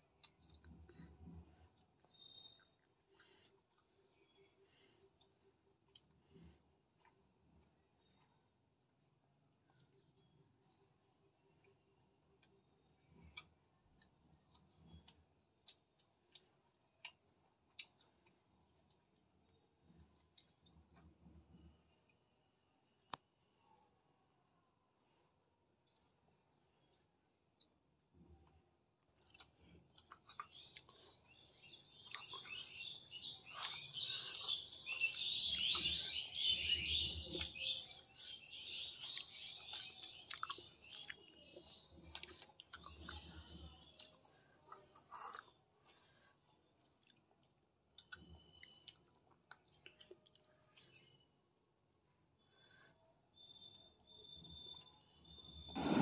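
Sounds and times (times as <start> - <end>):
person chewing food: 0.0 - 22.3, 25.4 - 36.1, 36.8 - 56.0
birds chirping: 30.3 - 44.9.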